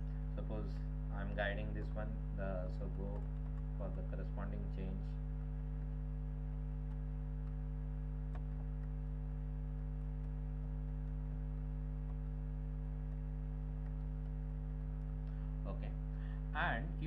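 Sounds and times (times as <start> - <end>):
low electrical hum: 0.0 - 17.0
keyboard clicks: 13.0 - 15.3.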